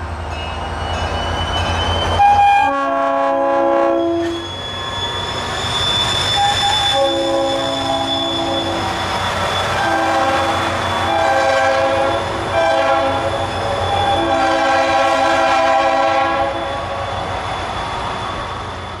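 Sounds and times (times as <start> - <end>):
train rumble: 0.0 - 19.0
train horn blasts: 2.2 - 4.4, 6.8 - 8.9, 9.7 - 13.4, 14.1 - 16.9.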